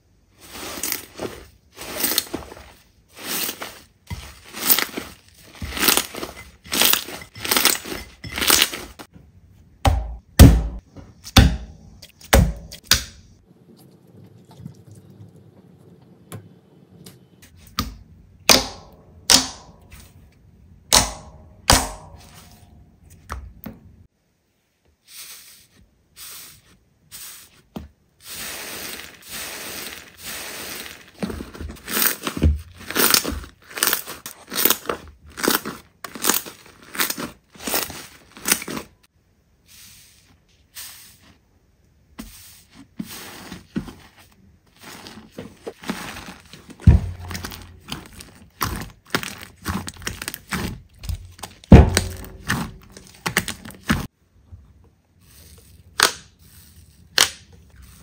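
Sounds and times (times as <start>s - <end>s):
slime popping and crackling: 31.9s - 38.9s, 45.9s - 54.1s.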